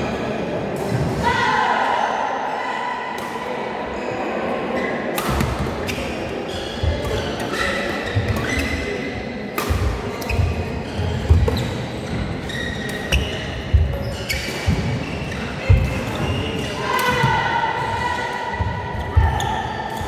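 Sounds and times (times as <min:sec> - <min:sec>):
shoes squeaking on court: 0:05.8 - 0:17.3
racket striking shuttlecock: 0:09.5 - 0:10.6.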